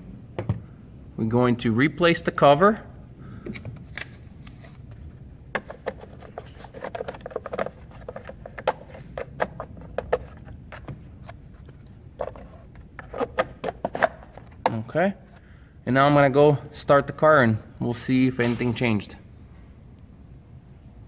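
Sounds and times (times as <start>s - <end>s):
plastic cover clicking and tapping: 5.5s - 11.0s.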